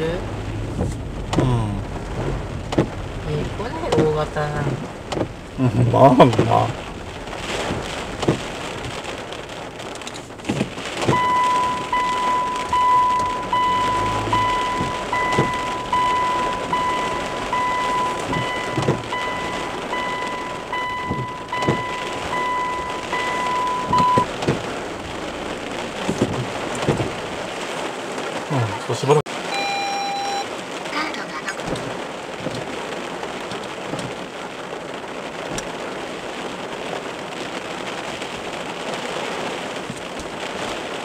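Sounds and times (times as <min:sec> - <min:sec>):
heavy rain on car: 0:00.0 - 0:41.0
electronic beep: 0:11.1 - 0:24.3, 0:29.5 - 0:30.5.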